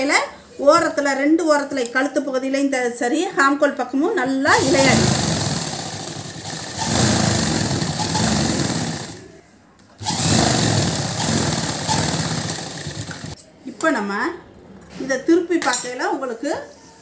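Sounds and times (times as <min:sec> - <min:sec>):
sewing machine running: 0:04.5 - 0:09.3, 0:10.0 - 0:13.4.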